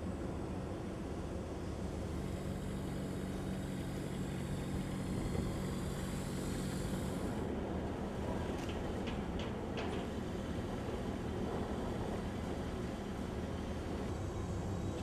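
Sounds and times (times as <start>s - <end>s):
dockside noise: 4.8s - 15.0s.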